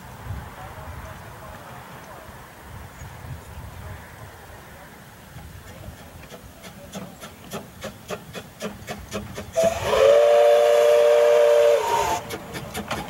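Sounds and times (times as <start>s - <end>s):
steam locomotive chuffing: 5.3s - 13.0s.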